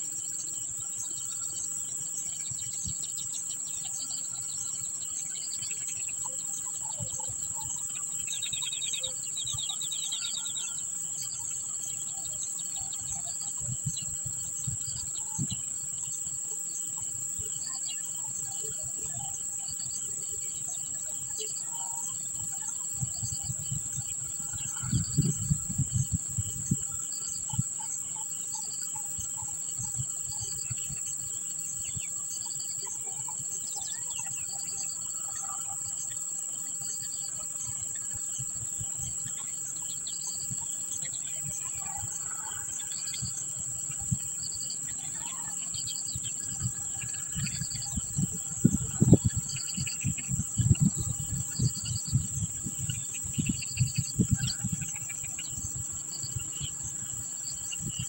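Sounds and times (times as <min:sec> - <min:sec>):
high-pitched insect drone: 0:00.0 - 0:58.0.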